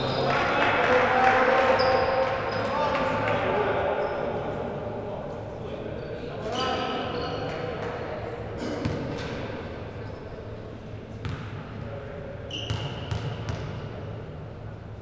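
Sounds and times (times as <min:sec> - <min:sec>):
high shoe squeak: 0:06.0 - 0:07.6, 0:12.5 - 0:13.3
basketball bouncing on gym floor: 0:11.2 - 0:11.5, 0:12.7 - 0:13.8.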